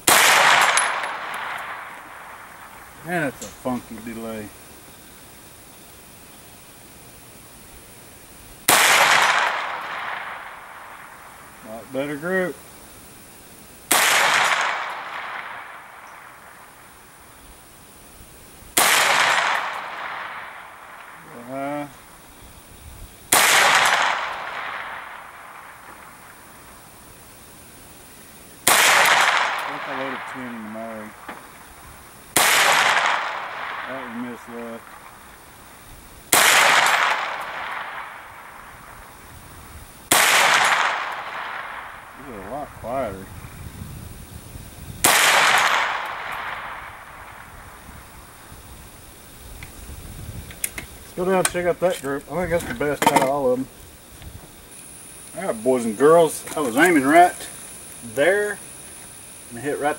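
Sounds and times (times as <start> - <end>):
gunshots: 0.0 - 4.4, 8.6 - 12.5, 13.9 - 16.8, 18.7 - 21.9, 23.3 - 26.4, 28.6 - 31.6, 32.3 - 35.2, 36.3 - 39.0, 40.1 - 42.6, 45.0 - 47.7
rifle shots echoing: 0.0 - 4.6, 8.6 - 12.5, 13.8 - 17.4, 18.7 - 22.2, 23.3 - 27.0, 28.6 - 39.3, 40.1 - 42.8, 45.0 - 48.5.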